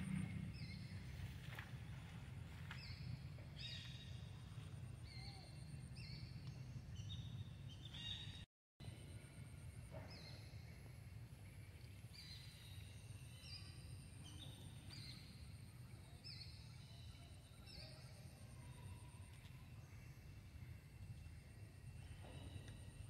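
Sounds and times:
low rumble: 0.0s - 7.8s.

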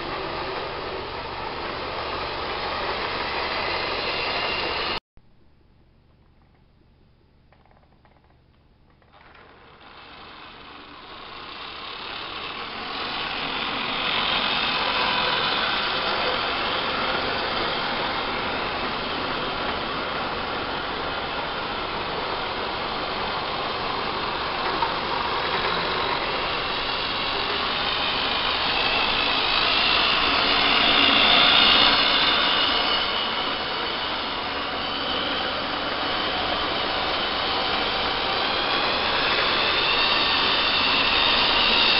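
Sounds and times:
electric motors whirring: 9.2s - 41.9s
wheels rolling and clattering: 12.1s - 41.9s.

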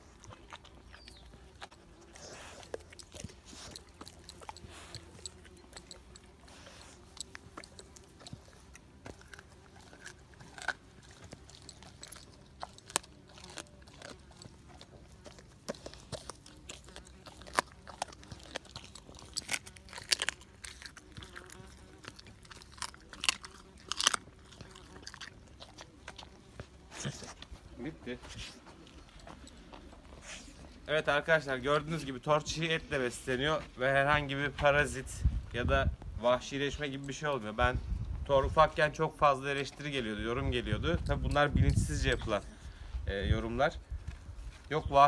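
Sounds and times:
dog chewing raw meat: 0.0s - 30.9s.

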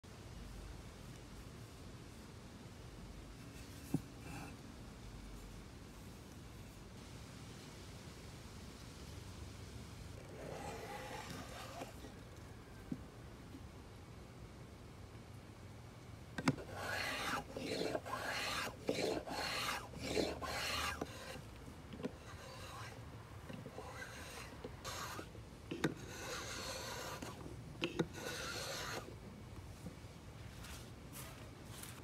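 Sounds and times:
wood plane shaving strokes: 10.2s - 12.2s, 16.4s - 29.1s.

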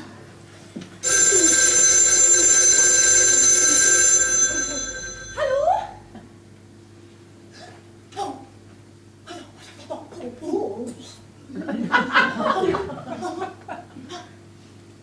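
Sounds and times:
telephone bell ringing: 1.0s - 5.8s.

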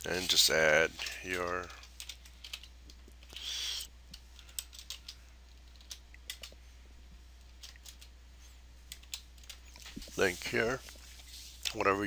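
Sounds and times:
short hiss: 3.4s - 3.9s.

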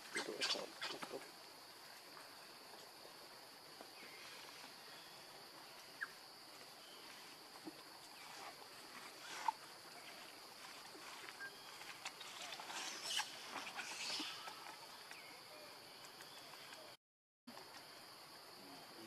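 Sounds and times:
faint chirps: 4.0s - 17.0s.

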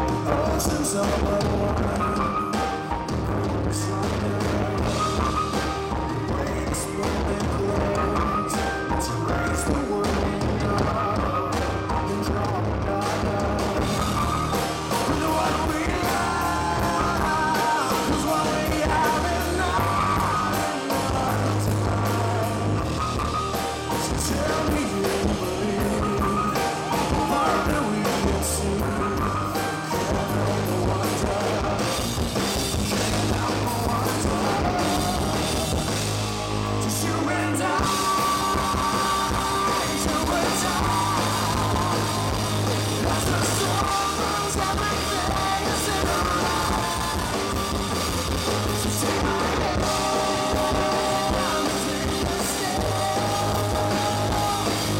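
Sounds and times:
man singing into a microphone: 0.0s - 32.2s, 32.8s - 54.9s
live rock band playing: 0.0s - 54.9s.

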